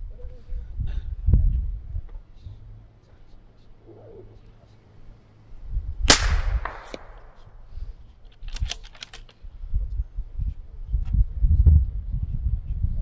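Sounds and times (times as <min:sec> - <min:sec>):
rifle bolt clicks: 0:06.1 - 0:07.5, 0:08.3 - 0:09.4
rifle shot echoing: 0:06.1 - 0:07.6.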